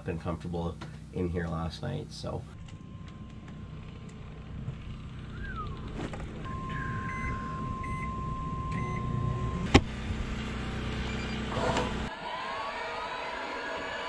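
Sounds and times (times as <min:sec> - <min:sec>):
microwave hum: 0:02.5 - 0:12.1
microwave keypad beeps: 0:06.4 - 0:09.6.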